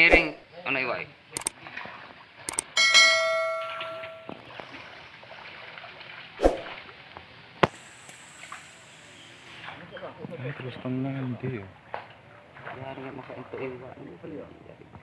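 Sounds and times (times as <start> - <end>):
short sharp clicks: 1.4 - 1.6, 2.5 - 2.7
mouse click: 2.5 - 2.7
bright bell-like chime: 2.8 - 4.3.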